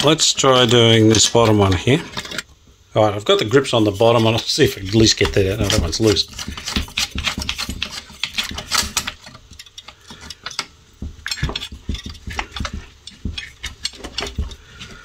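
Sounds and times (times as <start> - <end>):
metallic clicks knocks and scrapes: 0.0 - 2.5, 3.8 - 15.0.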